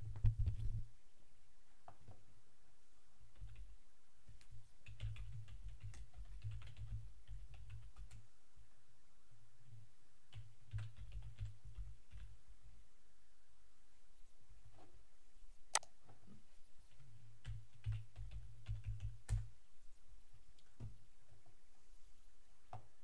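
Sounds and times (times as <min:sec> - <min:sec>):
computer keyboard typing: 0:03.3 - 0:03.7, 0:04.4 - 0:08.2, 0:10.3 - 0:12.3, 0:16.9 - 0:19.5.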